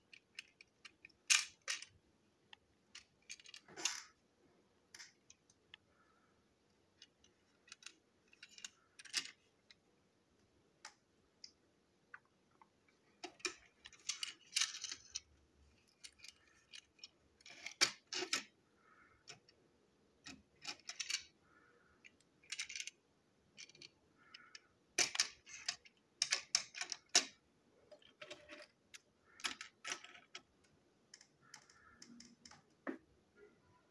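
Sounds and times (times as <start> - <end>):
plastic toy train clicks and rattles: 0.0 - 2.0, 2.9 - 4.1, 7.0 - 9.5, 13.2 - 18.5, 20.2 - 21.4, 22.0 - 23.0, 23.6 - 30.5.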